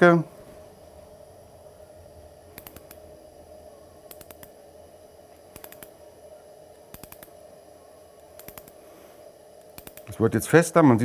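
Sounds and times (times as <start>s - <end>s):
torque ratchet clicking: 2.6s - 3.0s, 4.1s - 4.5s, 5.5s - 5.9s, 6.9s - 7.3s, 8.4s - 8.8s, 9.6s - 10.2s.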